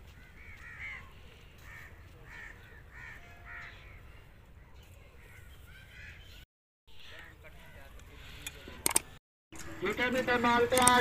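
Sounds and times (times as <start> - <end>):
crows cawing: 0.1 - 4.2, 5.2 - 8.8.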